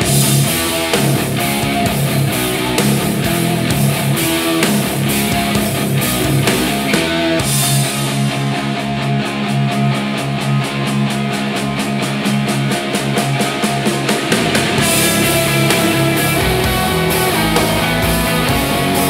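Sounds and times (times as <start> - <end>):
rock music through speakers: 0.0 - 19.0
pulsing bass line: 13.1 - 19.0.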